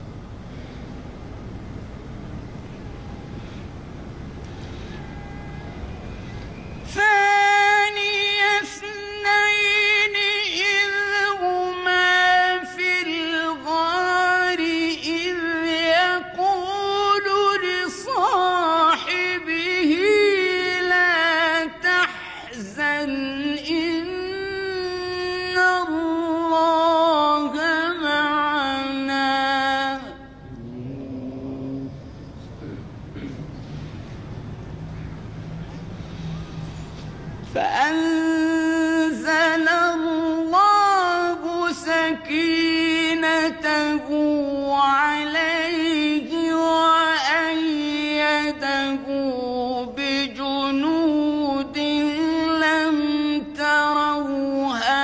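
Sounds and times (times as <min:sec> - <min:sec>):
low background noise: 0:00.0 - 0:55.0
man reciting melodically: 0:06.9 - 0:33.4, 0:37.6 - 0:55.0.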